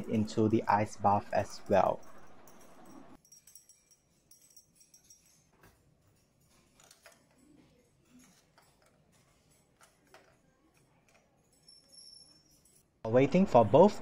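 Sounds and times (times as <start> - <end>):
glass tubes clinking: 0.0 - 13.0.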